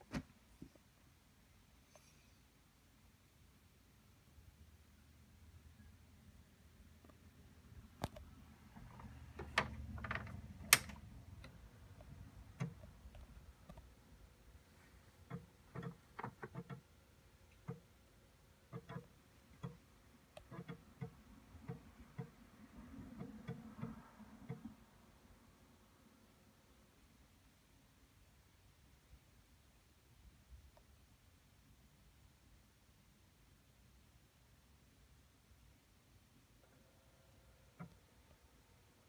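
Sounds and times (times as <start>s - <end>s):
floppy drive clicking: 18.7s - 19.8s.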